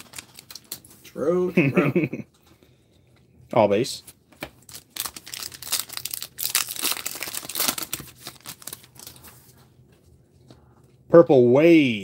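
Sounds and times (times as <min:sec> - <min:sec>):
foil wrapper tearing and crinkling: 0:00.0 - 0:00.8, 0:04.6 - 0:09.3.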